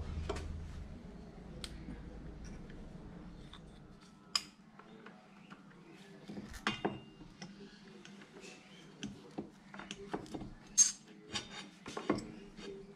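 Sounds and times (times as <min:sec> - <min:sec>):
low hum: 0:00.0 - 0:04.0.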